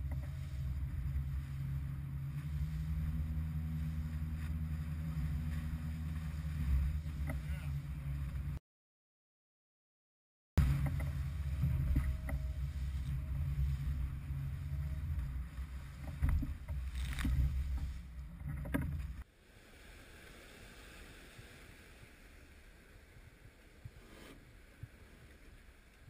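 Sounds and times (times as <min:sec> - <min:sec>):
boat engine drone: 0:00.0 - 0:08.6, 0:10.6 - 0:21.6
hull slapping waves: 0:00.0 - 0:08.6, 0:10.6 - 0:26.0
wind and water wash: 0:00.0 - 0:08.6, 0:10.6 - 0:26.0.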